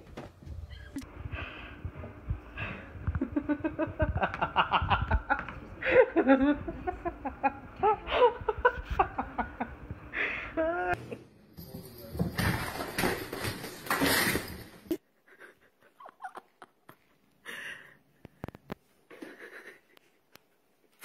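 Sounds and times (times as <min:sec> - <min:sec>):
people laughing: 0:03.2 - 0:10.0.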